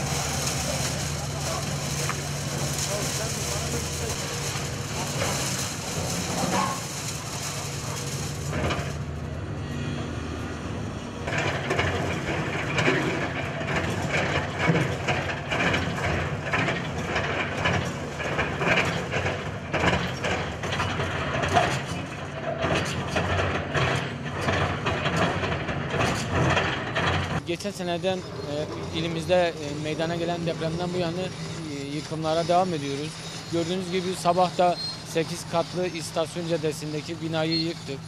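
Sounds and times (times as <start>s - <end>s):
concrete rubble crunching: 0.0s - 9.1s
excavator diesel engine running: 0.0s - 38.0s.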